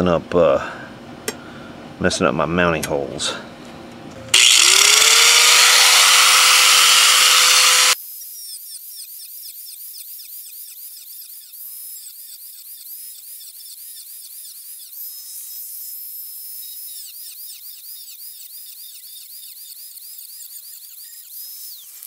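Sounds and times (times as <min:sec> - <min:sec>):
rotary tool cutting metal: 0:04.3 - 0:21.9.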